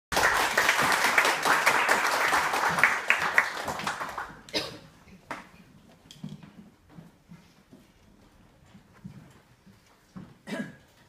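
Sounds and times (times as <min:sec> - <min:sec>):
audience applauding: 0:00.1 - 0:04.6.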